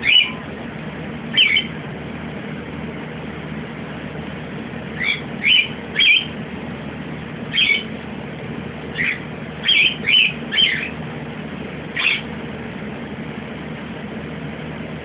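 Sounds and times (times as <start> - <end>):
small animal high-pitched calls: 0.0 - 0.5, 1.3 - 1.7, 5.0 - 6.4, 7.5 - 7.9, 9.0 - 11.0, 12.0 - 12.3.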